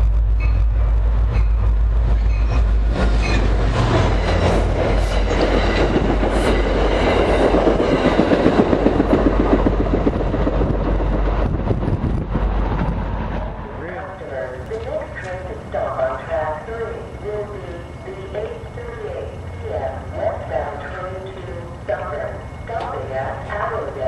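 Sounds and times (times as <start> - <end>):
diesel train rumble: 0.0 - 24.0
train wheels clattering over rail joints: 1.4 - 11.7.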